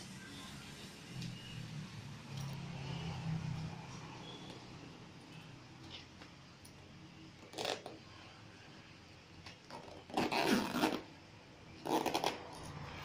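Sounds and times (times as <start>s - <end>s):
zipper being pulled: 7.4s - 8.0s, 9.7s - 11.1s, 11.8s - 13.0s.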